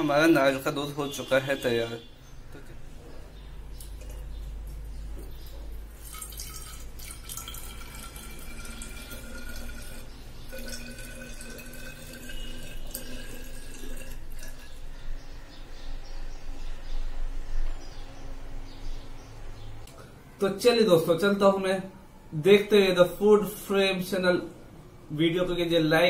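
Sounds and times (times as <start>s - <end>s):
liquid pouring into glass bottle: 6.0s - 14.8s.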